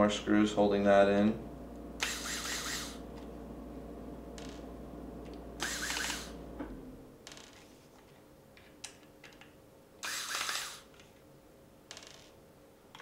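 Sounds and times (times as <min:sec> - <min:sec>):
cordless drill spinning: 0:02.0 - 0:03.0, 0:05.6 - 0:06.3, 0:10.0 - 0:10.9.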